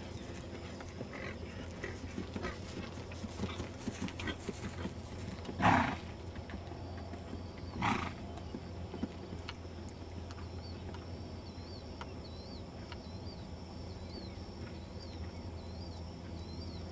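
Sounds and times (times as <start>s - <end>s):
horse hoofbeats cantering: 0.0s - 16.9s
horse snorting: 0.6s - 6.2s, 7.7s - 8.5s.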